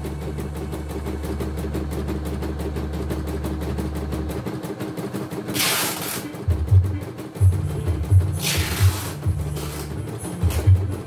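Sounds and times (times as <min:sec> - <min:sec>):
embroidery machine needle beating: 0:00.0 - 0:11.0
motor hum: 0:00.0 - 0:11.0.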